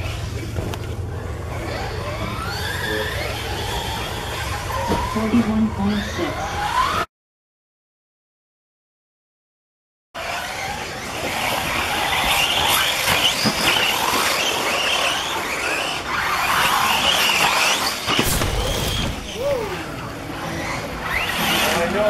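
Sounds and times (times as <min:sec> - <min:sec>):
rc car motors whining: 0:00.0 - 0:07.1, 0:10.2 - 0:22.0
tyres on dirt: 0:10.4 - 0:21.9.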